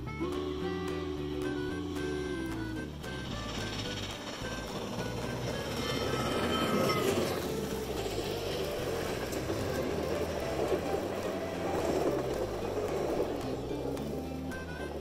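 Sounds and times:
model train wheels rumbling: 0:00.0 - 0:15.0.

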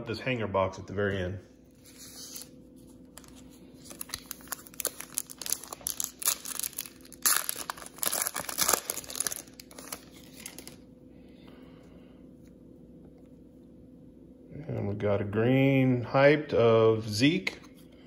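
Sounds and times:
foil wrapper crinkling and tearing: 0:01.8 - 0:10.8.

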